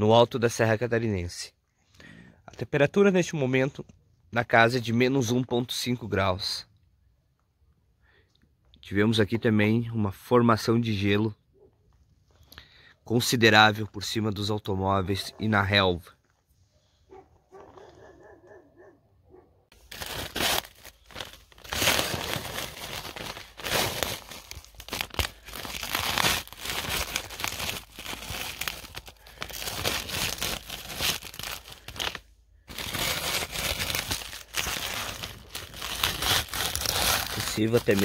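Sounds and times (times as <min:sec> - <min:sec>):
scraper scraping ice: 0:32.7 - 0:38.0.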